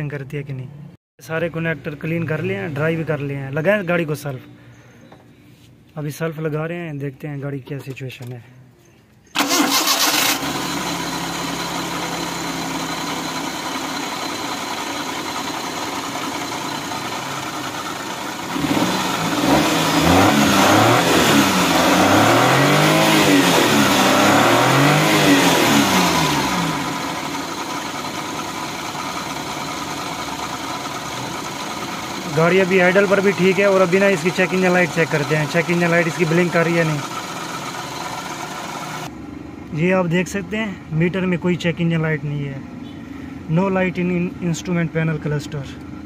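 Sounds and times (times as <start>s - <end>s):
car engine idling and revving: 9.4s - 46.0s.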